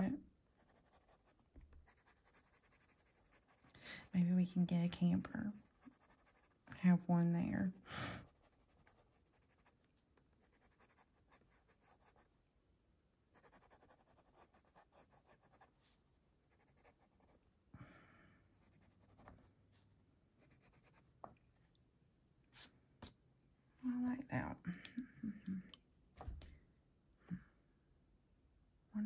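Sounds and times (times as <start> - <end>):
pencil scratching on paper: 0.6 - 6.7, 8.2 - 12.3, 13.4 - 15.9, 16.5 - 17.5, 18.6 - 19.4, 20.4 - 21.0.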